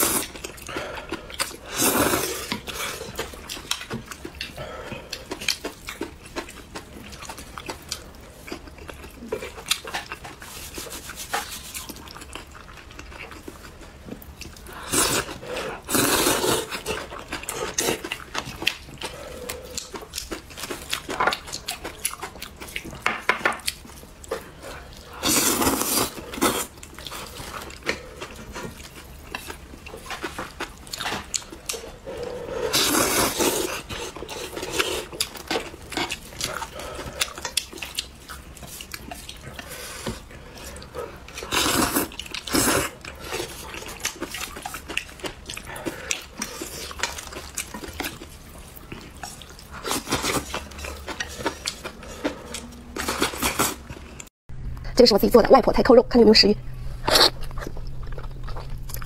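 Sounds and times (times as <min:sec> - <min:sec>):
wet chewing: 0:00.0 - 0:54.3, 0:57.0 - 0:59.0
noodles being slurped: 0:14.8 - 0:18.1, 0:24.4 - 0:54.3.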